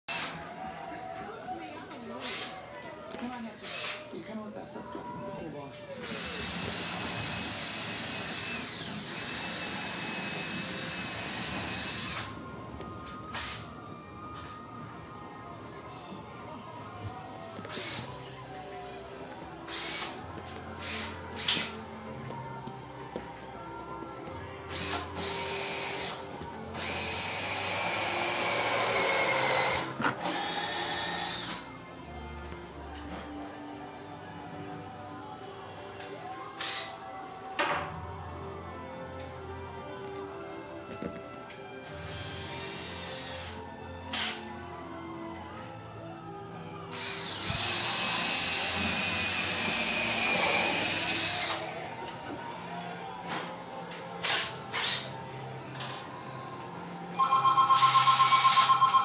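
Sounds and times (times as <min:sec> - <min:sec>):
small electric motor whining: 0:02.2 - 0:02.6, 0:06.0 - 0:12.4, 0:13.3 - 0:13.7, 0:17.6 - 0:18.2, 0:19.7 - 0:20.2, 0:24.7 - 0:31.7.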